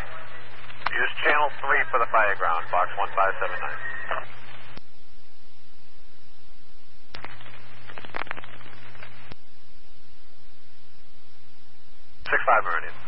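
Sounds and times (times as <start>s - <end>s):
radio scanner static hiss: 0.0s - 5.0s, 6.9s - 13.0s
radio transmission hum and clicks: 0.0s - 5.0s, 7.1s - 9.5s, 12.2s - 13.0s.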